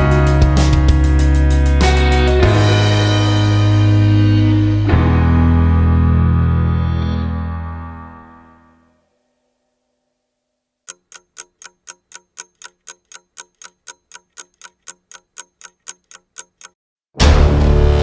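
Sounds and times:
clock-like ticking: 10.8 - 16.8.

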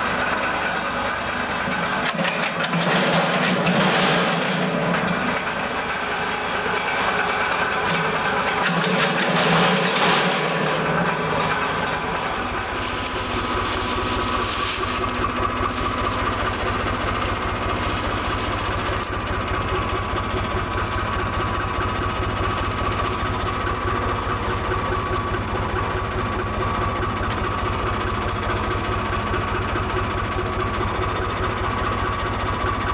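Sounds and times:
tractor engine running: 0.0 - 32.9.

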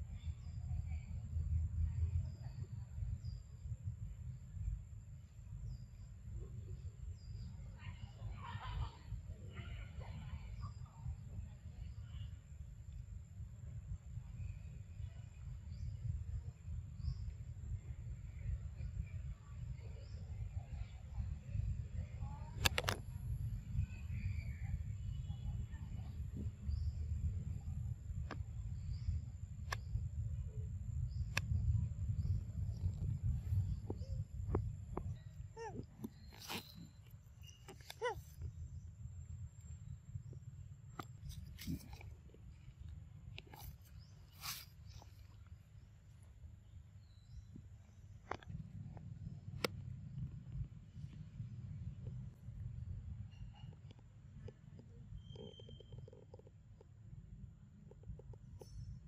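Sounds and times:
wind rumble on microphone: 0.0 - 59.0
faint high chirps: 52.8 - 56.4.

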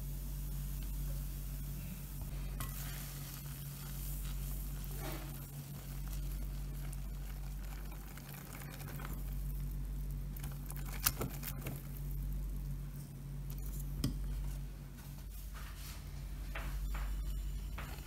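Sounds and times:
low hum: 0.0 - 18.0
whisk stirring batter: 2.6 - 9.6.

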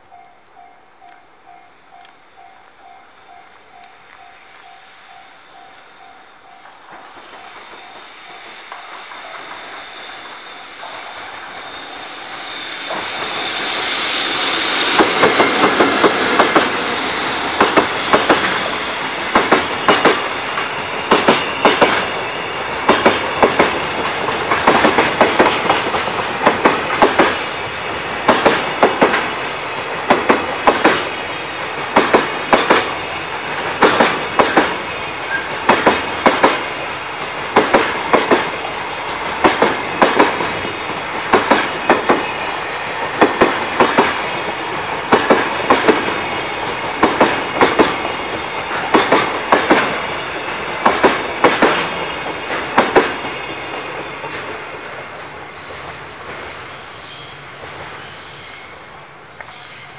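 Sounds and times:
train wheels clattering over rail joints: 6.6 - 27.6, 28.2 - 42.3, 43.0 - 54.9.

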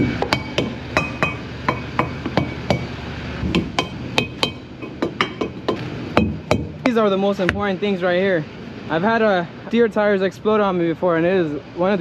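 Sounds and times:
metal thumper knocking on tires: 0.0 - 7.7.

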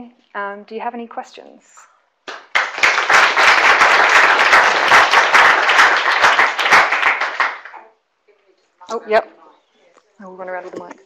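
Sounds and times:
audience applauding: 2.3 - 7.9.

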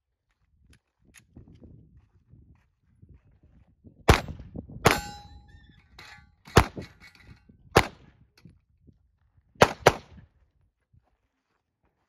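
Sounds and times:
handgun shots: 4.1 - 5.4, 6.5 - 7.0
steel target ringing: 4.9 - 7.2.

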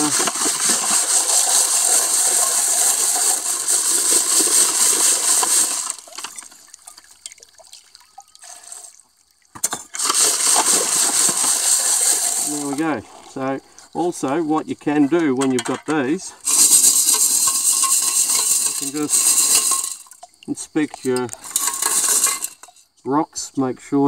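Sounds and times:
wet gravel churning in sieve pan: 0.0 - 6.6, 10.0 - 13.4, 16.5 - 20.2
water poured over rocks: 0.0 - 13.6, 16.4 - 22.6.

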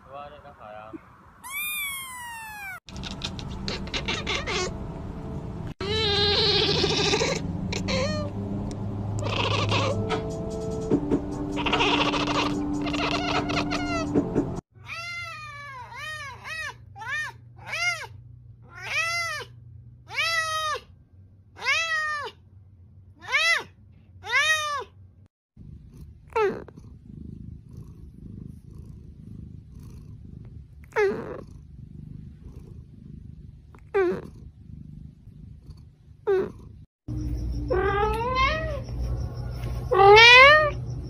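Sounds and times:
cat meowing: 1.4 - 4.7, 5.8 - 8.3, 9.2 - 10.0, 11.6 - 14.1, 14.8 - 18.1, 18.7 - 19.5, 21.6 - 22.4, 37.7 - 38.9, 39.9 - 40.8
cat purring: 2.6 - 4.7, 25.6 - 38.2.

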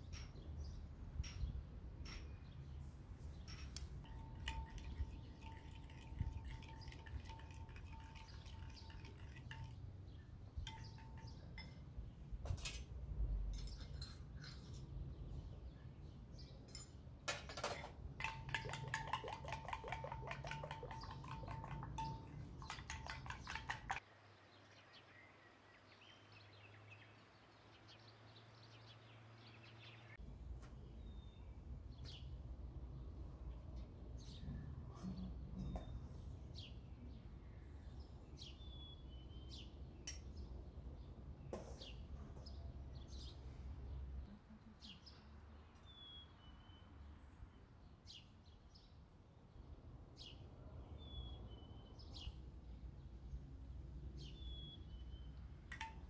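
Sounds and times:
dishes clinking: 3.5 - 9.8, 10.6 - 12.9, 13.5 - 14.9, 16.7 - 24.0
metal spoon clinking on glass bowl: 3.8 - 9.9, 10.6 - 12.0, 16.7 - 24.0, 55.7 - 56.0
quick evenly spaced taps: 3.8 - 10.0, 18.2 - 24.0.

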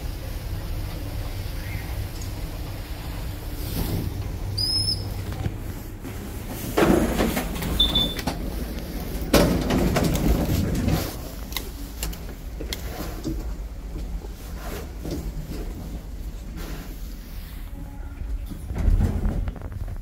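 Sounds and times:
lift doors sliding: 0.0 - 20.0
brief beep: 7.8 - 8.2.

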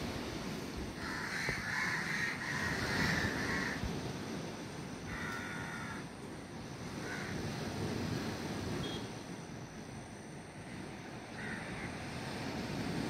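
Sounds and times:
crows cawing: 1.0 - 3.8, 5.1 - 6.1, 7.0 - 7.4, 11.3 - 12.0.

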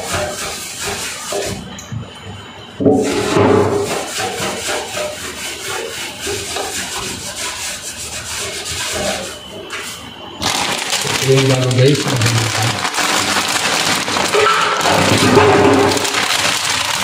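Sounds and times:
rag scrubbing steel sink: 0.0 - 1.6, 3.0 - 17.0.

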